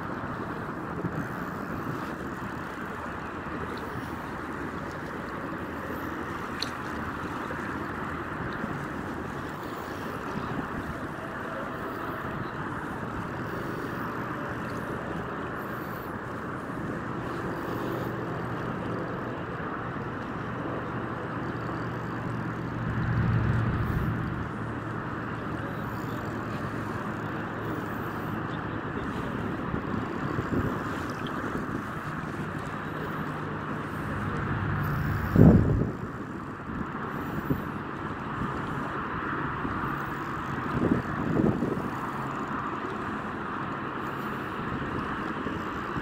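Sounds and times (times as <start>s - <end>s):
low motor hum: 0.0s - 46.0s
wind noise on microphone: 28.8s - 42.4s.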